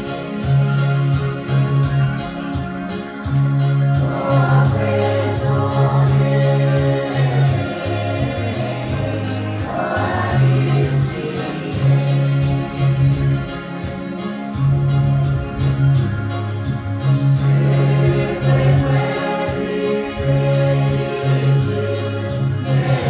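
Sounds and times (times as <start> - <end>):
electronic keyboard: 0.0 - 23.0
sustained bass notes: 0.0 - 23.0
group singing gospel music: 3.7 - 14.8, 16.9 - 23.0.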